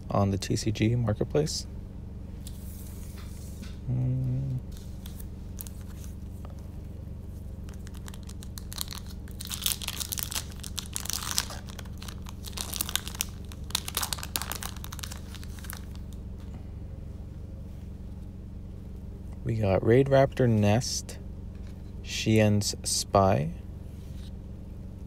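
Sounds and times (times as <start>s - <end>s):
low hum: 0.0s - 25.0s
foil wrapper tearing and crinkling: 7.7s - 16.2s.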